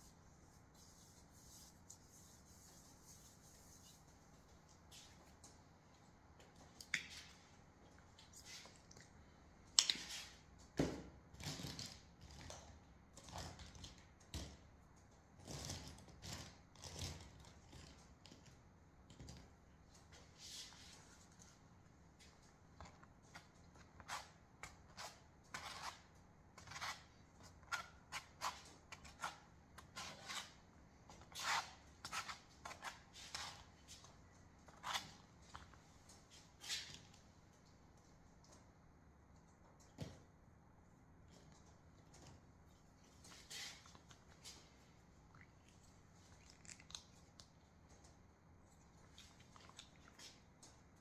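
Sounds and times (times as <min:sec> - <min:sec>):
paint scraper scraping canvas: 0:23.3 - 0:33.7.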